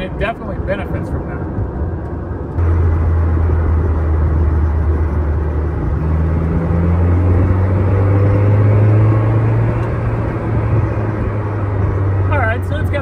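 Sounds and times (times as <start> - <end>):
wind noise: 1.0 - 13.0
car engine accelerating hard: 2.6 - 13.0.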